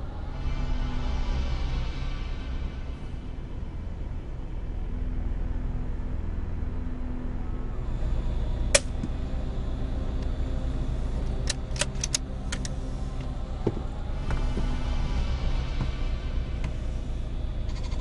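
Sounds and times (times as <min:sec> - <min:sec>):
light metallic clicks: 0:11.4 - 0:13.3.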